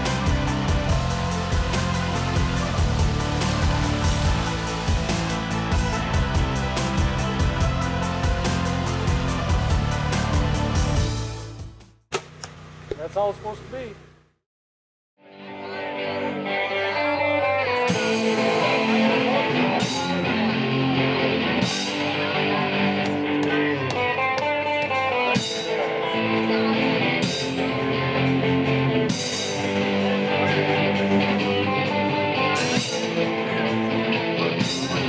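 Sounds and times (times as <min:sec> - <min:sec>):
electric guitar playing: 0:00.0 - 0:11.3, 0:15.2 - 0:35.0
drum kit: 0:00.0 - 0:13.0, 0:22.9 - 0:26.0, 0:27.2 - 0:33.4.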